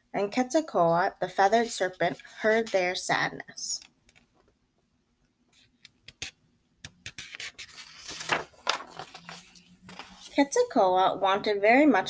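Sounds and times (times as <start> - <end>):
paper pages rustling: 7.0 - 10.5.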